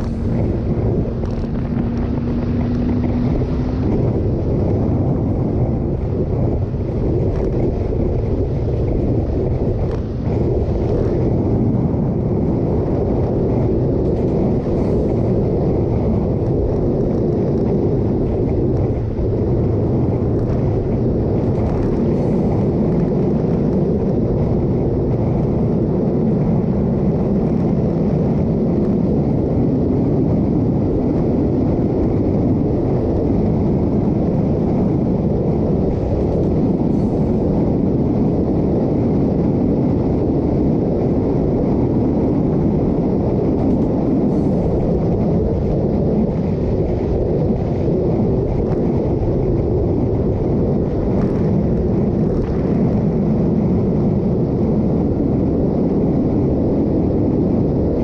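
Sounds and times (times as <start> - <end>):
motorcycle engine: 0.0 - 29.7
road noise: 0.0 - 58.0
wind buffeting microphone: 0.0 - 58.0.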